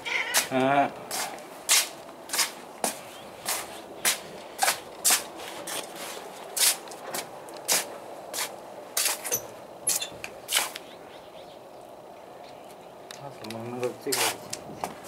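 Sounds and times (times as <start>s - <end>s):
footsteps scuffing on tiled floor: 0.3s - 10.8s.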